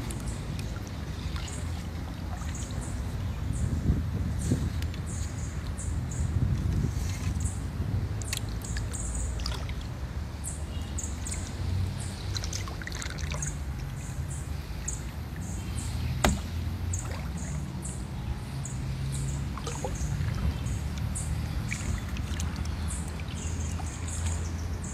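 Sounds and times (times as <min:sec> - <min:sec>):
kayak paddling: 0:00.0 - 0:03.6, 0:06.5 - 0:17.8
low rumble of water: 0:00.0 - 0:24.9
sharp knock: 0:16.2 - 0:16.5.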